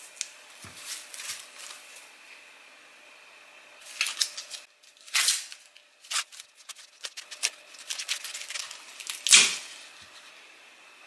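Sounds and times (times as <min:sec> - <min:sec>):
corn husks tearing: 0:03.9 - 0:09.8.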